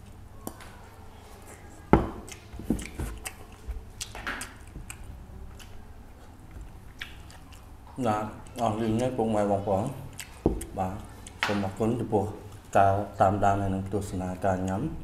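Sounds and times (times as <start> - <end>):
wet chewing and smacking: 0.4 - 11.9.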